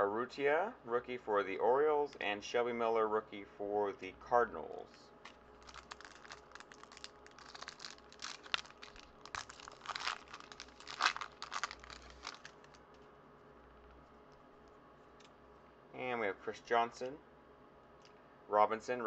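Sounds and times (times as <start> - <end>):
foil wrapper crinkling: 5.3 - 13.0.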